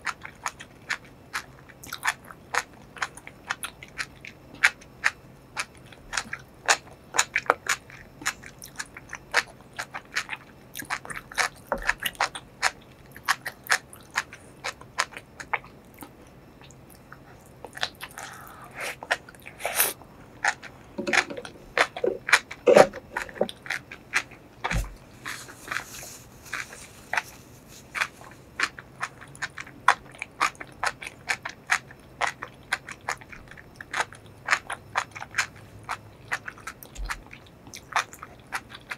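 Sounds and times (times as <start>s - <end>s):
close chewing with mouth clicks: 0.0s - 38.9s
sucking sounds: 18.1s - 20.0s.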